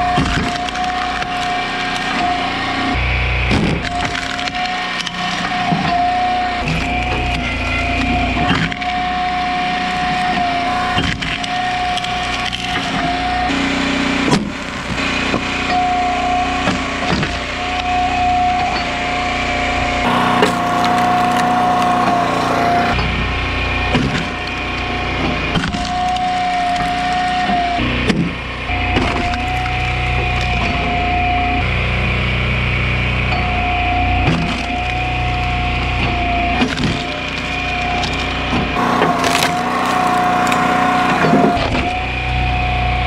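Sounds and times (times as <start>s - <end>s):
high machine whine: 20.0s - 23.0s, 38.8s - 42.0s
log splitter running: 20.0s - 23.0s, 38.8s - 41.8s
wood cracking and splintering: 38.8s - 41.6s.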